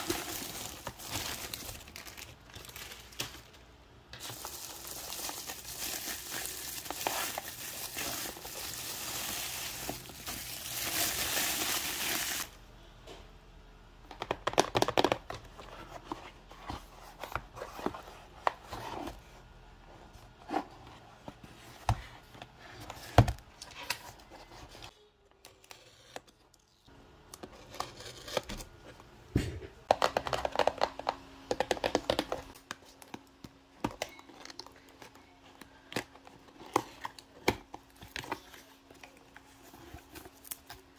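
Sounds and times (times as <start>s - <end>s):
box rustling: 0.0s - 3.6s
bubble wrap crinkling: 0.0s - 12.5s.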